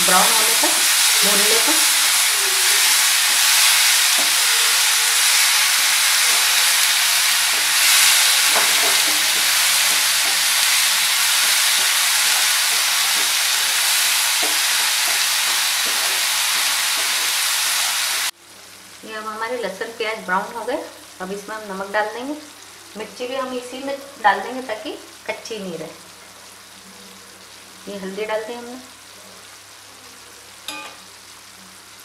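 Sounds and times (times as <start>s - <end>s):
spatula scraping pan: 0.0s - 18.1s
paste sizzling in hot oil: 0.0s - 18.8s.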